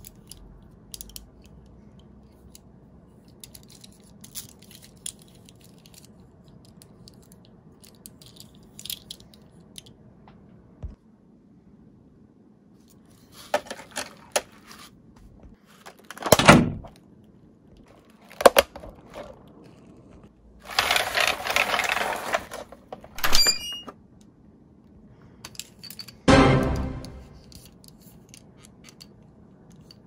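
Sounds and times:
toy cars clicking: 0.0s - 2.7s, 3.3s - 9.9s, 20.6s - 23.1s.

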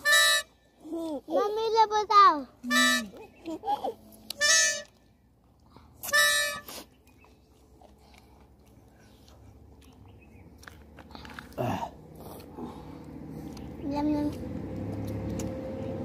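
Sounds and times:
plastic toy horn: 2.7s - 3.2s, 4.4s - 4.9s, 6.0s - 6.7s.

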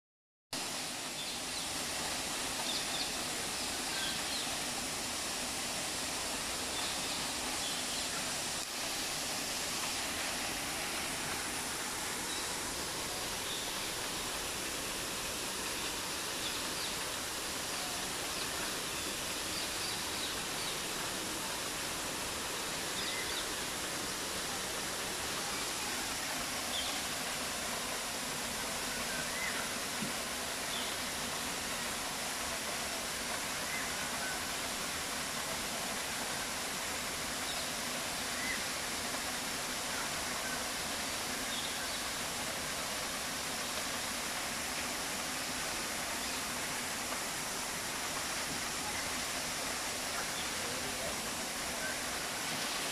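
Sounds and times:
waterfall rushing onto rocks: 0.6s - 52.9s.

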